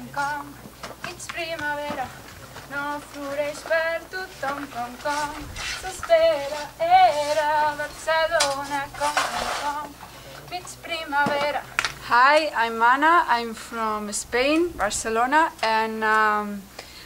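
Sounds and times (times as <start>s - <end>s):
woman singing: 0.0s - 16.7s
brief scraping noises: 8.5s - 10.4s.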